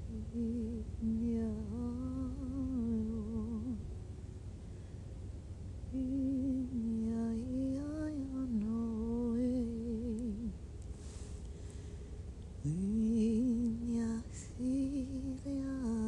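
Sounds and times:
woman humming: 12.6s - 16.0s.

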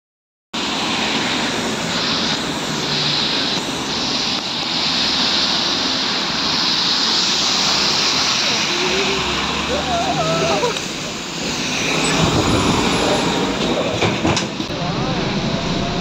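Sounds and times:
tyres hissing on slush: 0.6s - 13.9s.

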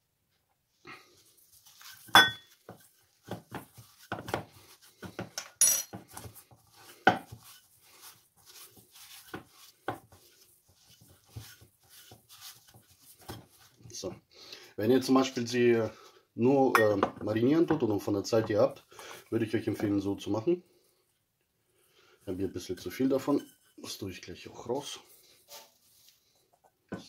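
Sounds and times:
meat and hands against metal bowl: 1.5s - 14.1s.

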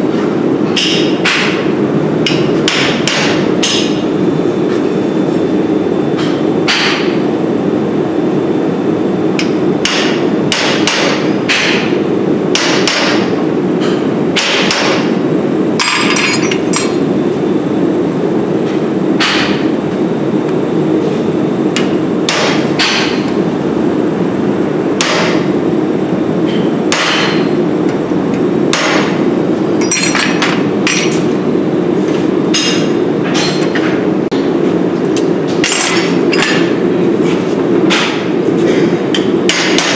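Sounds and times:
hammer striking hot steel: 0.7s - 1.6s, 2.2s - 4.0s, 9.4s - 11.9s, 12.5s - 15.1s, 19.2s - 19.6s, 21.8s - 23.2s, 25.0s - 25.5s, 26.5s - 27.5s, 28.7s - 29.2s, 37.9s - 39.9s.

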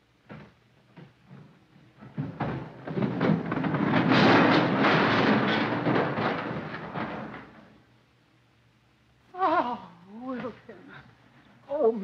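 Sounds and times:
scrap metal parts crashing onto ground: 2.9s - 7.6s.

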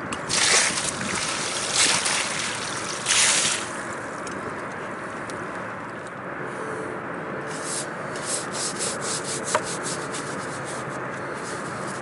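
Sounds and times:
wind: 0.0s - 12.0s
water sloshing and splashing: 0.1s - 4.0s
lapping water: 0.2s - 3.8s.

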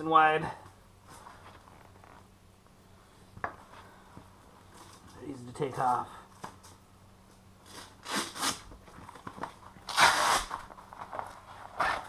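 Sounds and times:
velcro straps ripping open: 7.7s - 8.7s, 9.9s - 10.7s, 11.8s - 12.0s.

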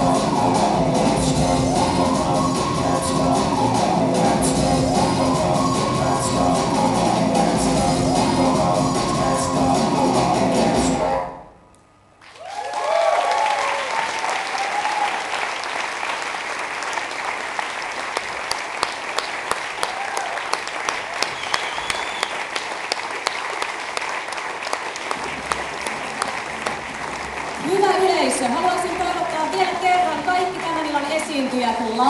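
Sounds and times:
rock music: 0.0s - 11.3s
audience applauding: 12.2s - 32.0s
crowd cheering and whooping: 12.3s - 15.6s, 19.8s - 22.6s.

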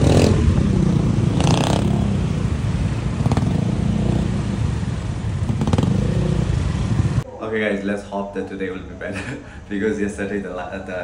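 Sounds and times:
scooter engine rumble: 0.0s - 7.3s
city street traffic: 0.0s - 11.0s.

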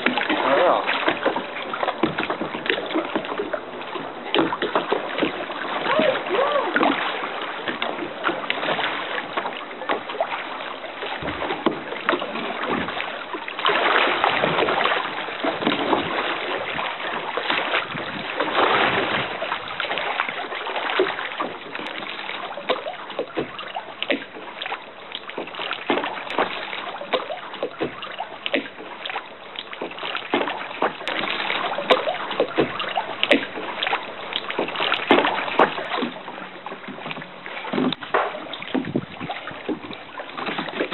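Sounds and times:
water slapping kayak hull: 0.0s - 40.9s.

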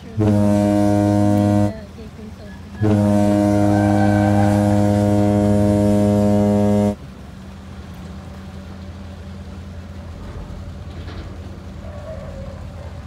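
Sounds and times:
ship horn long deep blast: 0.0s - 1.9s, 2.8s - 7.0s.

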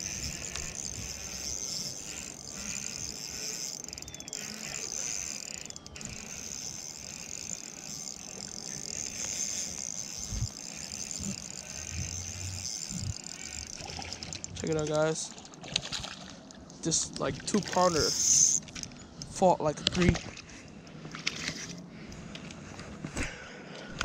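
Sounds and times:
fishing reel whirring: 0.0s - 15.8s, 16.4s - 18.9s, 21.1s - 21.8s.

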